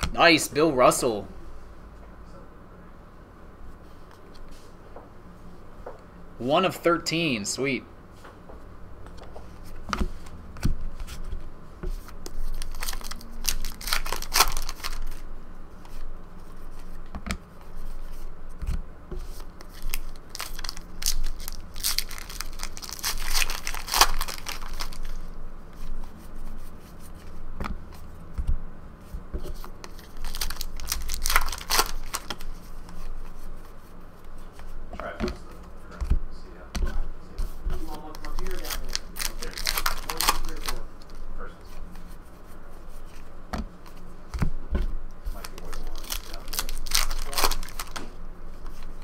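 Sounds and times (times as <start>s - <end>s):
wrapper crinkling and tearing: 12.4s - 15.2s, 19.7s - 25.2s, 29.9s - 32.5s, 37.9s - 41.2s, 45.3s - 48.0s.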